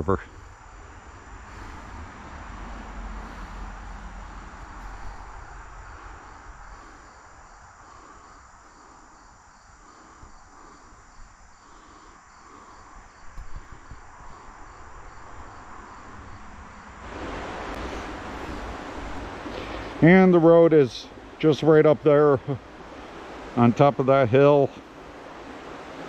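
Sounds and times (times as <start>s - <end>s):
crickets chirping: 0.0s - 26.0s
steady rush of noise: 0.0s - 26.0s
wind rumble on microphone: 12.9s - 20.1s.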